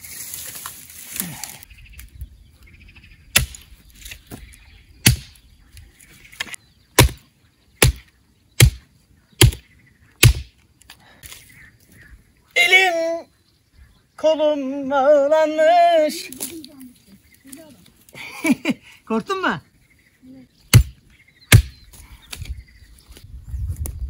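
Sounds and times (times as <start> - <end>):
axe chopping firewood: 3.4 - 3.6, 5.0 - 5.3, 6.4 - 7.2, 7.8 - 8.8, 9.4 - 9.6, 10.2 - 10.5, 20.7 - 22.4.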